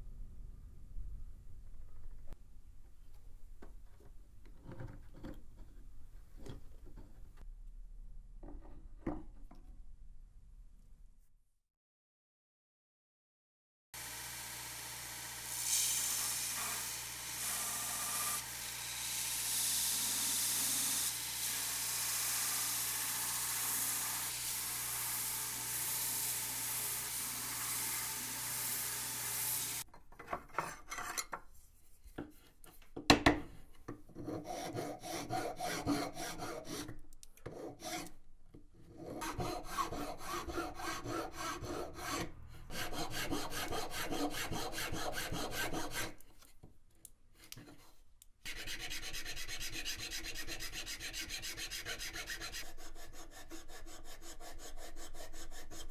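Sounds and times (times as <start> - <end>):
belt grinder sanding wood: 14.0 - 29.8
hand file rasping on wood: 34.1 - 36.9, 37.5 - 38.2, 38.9 - 46.2, 48.5 - 55.9.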